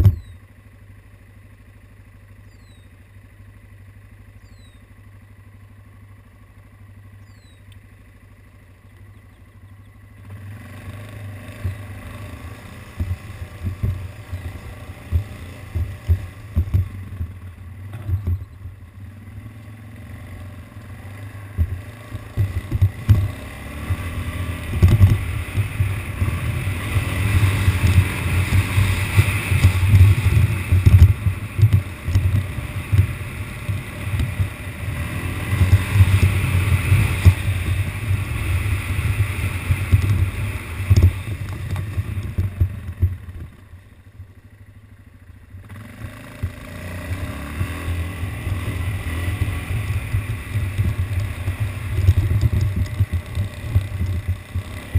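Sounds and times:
atv engine running: 0.0 - 54.9
wind rumble on microphone: 21.6 - 43.5, 47.6 - 54.9.

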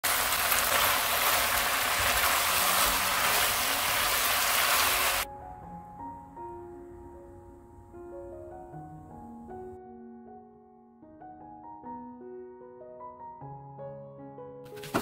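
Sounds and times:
food sizzling in a wok: 0.0 - 5.3
soft piano music: 0.6 - 15.0.

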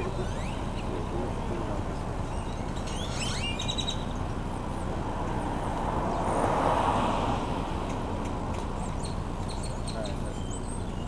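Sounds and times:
bird chirps: 0.0 - 1.3, 1.9 - 4.3, 8.5 - 11.0
vehicle passing by: 2.7 - 10.4.

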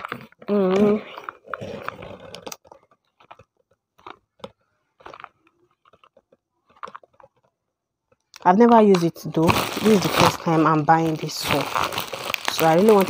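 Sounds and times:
bubble wrap crinkling: 8.4 - 13.0
cardboard boxes being handled: 9.4 - 13.0.

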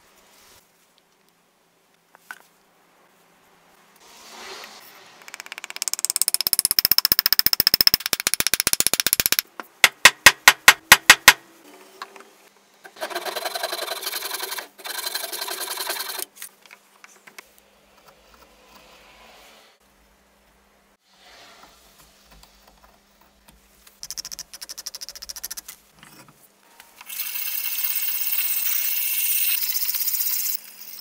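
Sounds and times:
hammer tapping wooden wedge: 5.2 - 11.4.

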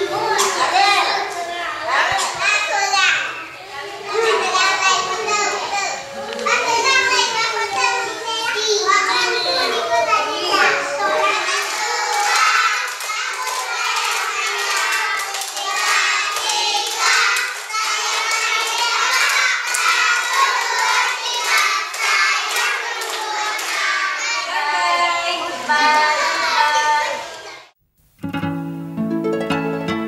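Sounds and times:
children singing in unison: 9.0 - 27.7
children clapping hands: 11.0 - 24.4.

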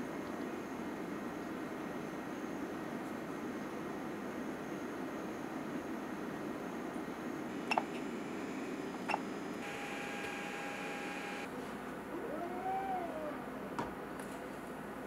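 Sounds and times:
motor whine: 7.5 - 13.8
stepper motor whine rising and falling: 9.6 - 13.8.

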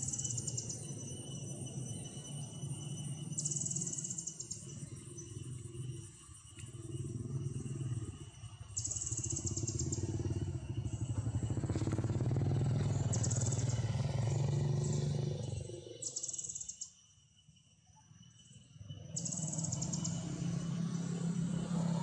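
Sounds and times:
small engine humming: 2.9 - 16.9, 19.0 - 22.0.

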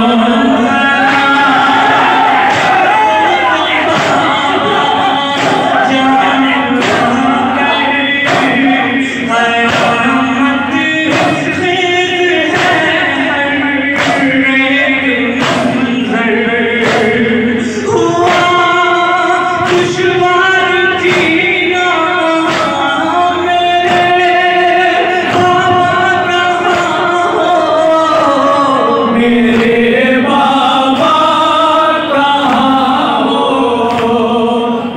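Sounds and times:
man chanting lament: 0.0 - 34.9
chest-beating thumps: 1.7 - 13.3, 13.9 - 14.7, 15.3 - 16.1, 19.6 - 27.2.

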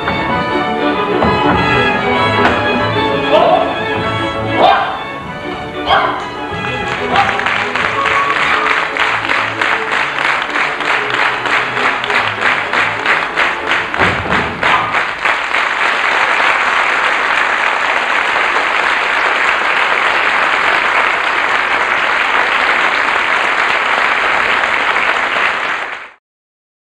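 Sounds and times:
audience applauding: 6.4 - 26.2.

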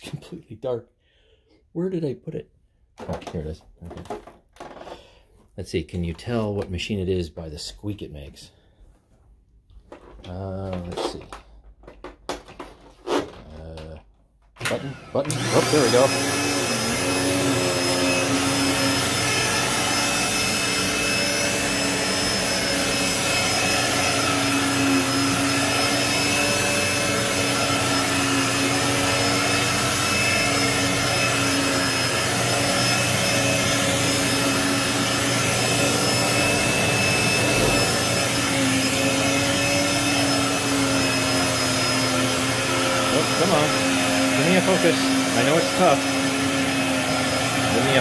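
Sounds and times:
vacuum cleaner running on carpet: 14.6 - 48.0.

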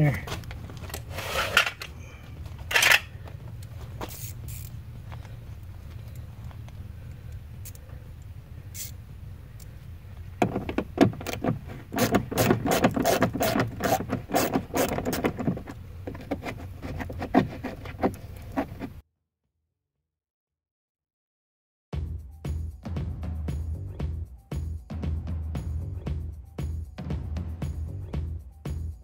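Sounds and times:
steady low hum: 0.2 - 19.0
hand tool clicking and rattling: 0.8 - 2.0, 2.6 - 4.8, 6.0 - 9.0, 10.4 - 18.9.

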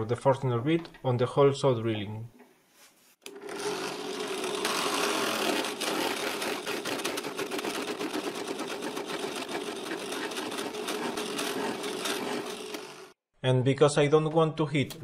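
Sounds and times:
drill press motor hum: 3.2 - 13.2
drill bit cutting wood chips: 3.3 - 13.2.

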